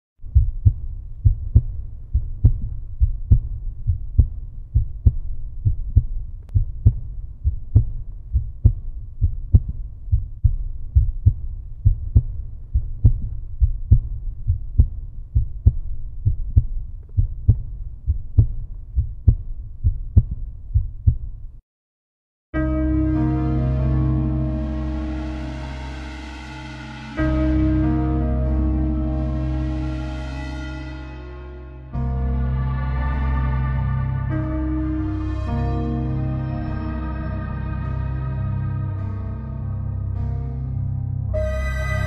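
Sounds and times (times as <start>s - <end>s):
heartbeat thumps: 0.2s - 21.6s
music: 22.6s - 42.0s.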